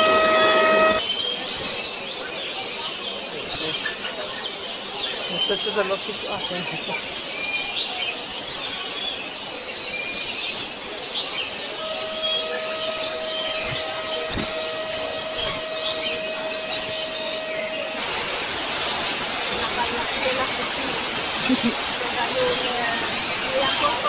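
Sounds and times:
steady whistle-like tone: 0.0 - 1.1, 11.6 - 21.6
birds chirping: 0.0 - 2.1, 2.8 - 24.0
waterfall hissing: 10.9 - 24.0.

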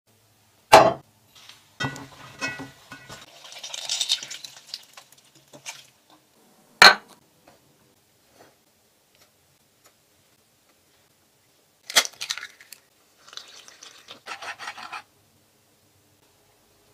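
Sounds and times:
metal spoon clinking on basin: 1.8 - 4.3.

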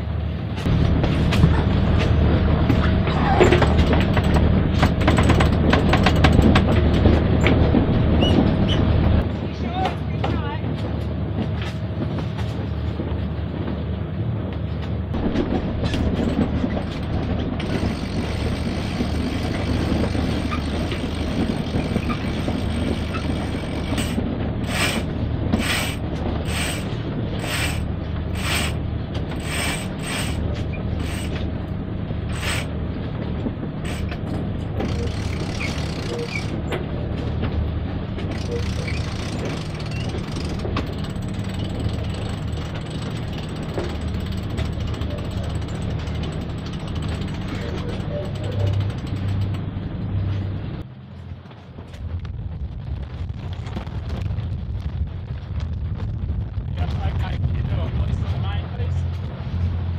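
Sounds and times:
winch ratchet clicking: 17.6 - 30.4, 31.0 - 31.4, 32.3 - 32.7, 34.8 - 36.6, 38.3 - 49.6.

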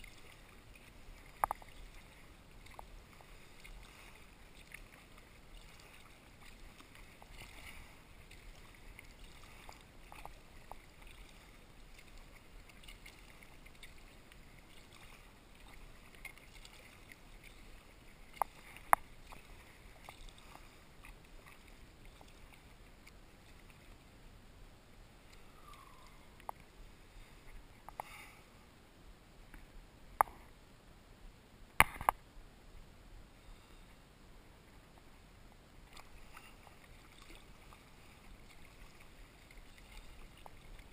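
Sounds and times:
water dripping: 0.0 - 23.9, 25.3 - 26.7
kayak paddle splashing in water: 0.0 - 24.0, 35.9 - 40.9.

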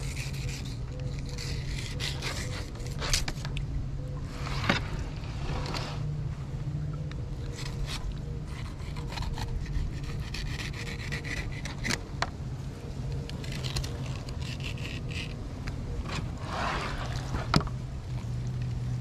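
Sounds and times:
knife scraping along fish: 0.0 - 3.5, 7.5 - 12.0, 13.3 - 15.4, 16.4 - 17.5.

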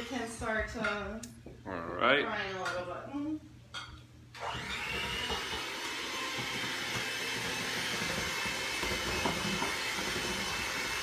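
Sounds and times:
kitchen appliance motor running: 4.3 - 11.0.

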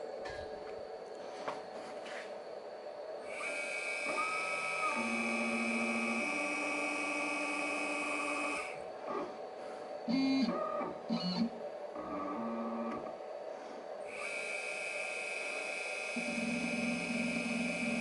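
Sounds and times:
router spindle high whine: 3.2 - 8.9, 10.1 - 13.1, 14.0 - 18.0
stepper motors humming: 3.2 - 9.4, 14.1 - 18.0.

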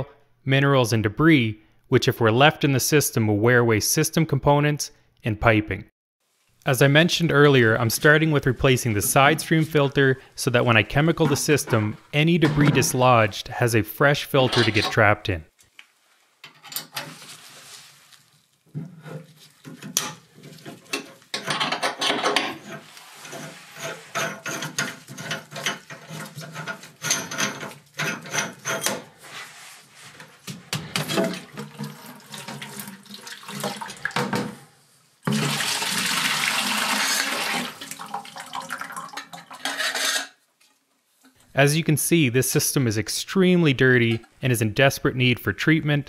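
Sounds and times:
metal clicks and scrapes: 19.0 - 29.1
water pouring into plastic bucket: 30.9 - 34.4, 35.3 - 39.6.

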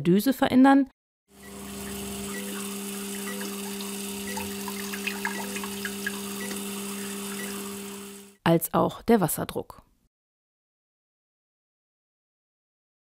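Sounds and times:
water dripping: 1.4 - 8.2
water spray hissing: 1.4 - 8.2.

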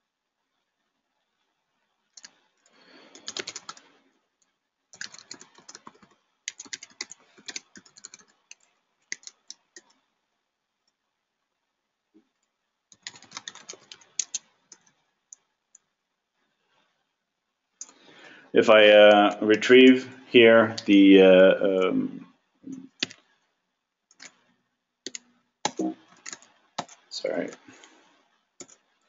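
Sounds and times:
typing on keyboard: 2.2 - 2.4, 3.0 - 3.9, 4.9 - 10.0, 12.9 - 15.9, 22.9 - 23.4, 24.1 - 27.6, 28.6 - 29.0.

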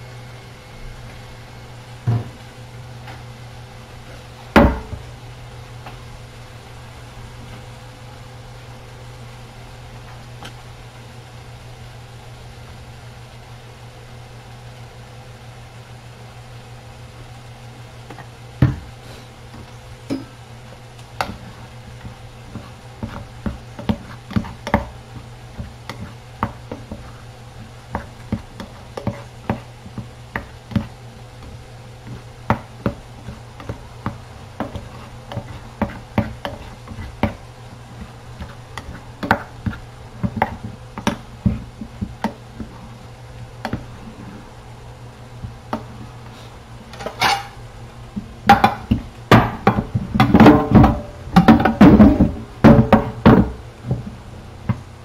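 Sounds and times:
steady low hum: 0.0 - 55.0
spoon scraping and knocking a pot: 32.0 - 37.4, 47.0 - 47.6.

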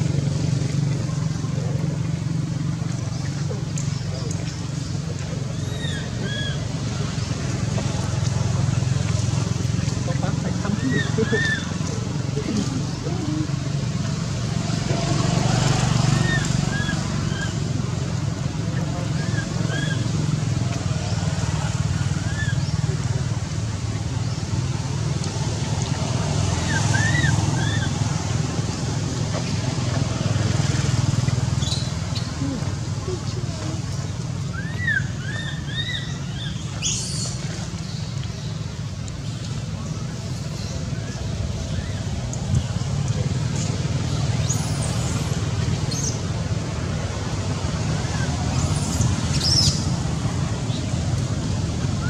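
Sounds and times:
low outdoor rumble: 0.0 - 52.0.

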